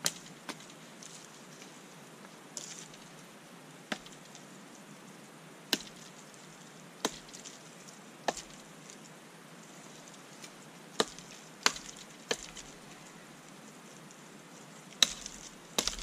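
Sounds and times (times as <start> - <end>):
knife chopping wooden pole: 15.0 - 16.0.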